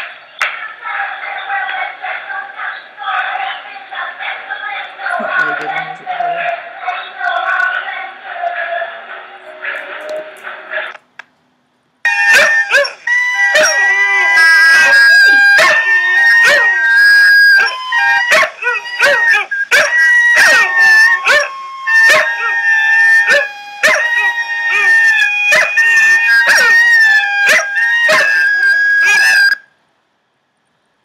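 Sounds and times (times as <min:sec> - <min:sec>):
dogs barking and yipping: 0:12.1 - 0:29.6
dogs howling: 0:12.1 - 0:29.6.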